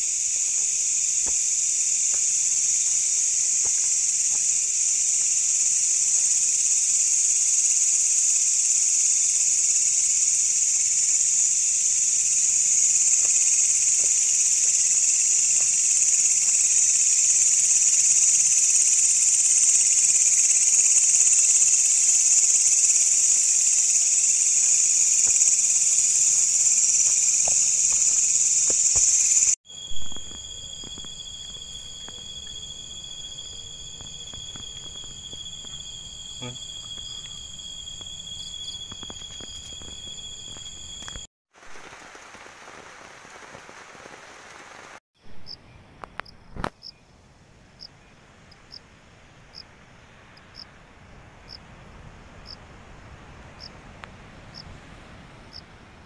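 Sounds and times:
high-pitched insect tones: 0:00.0 - 0:41.3
night insects chorus: 0:00.0 - 0:47.0, 0:47.8 - 0:56.0.

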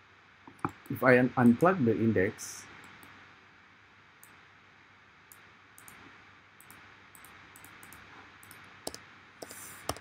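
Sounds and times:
microphone hiss: 0:00.0 - 0:10.0
mouse and keyboard clicks: 0:06.6 - 0:10.0.

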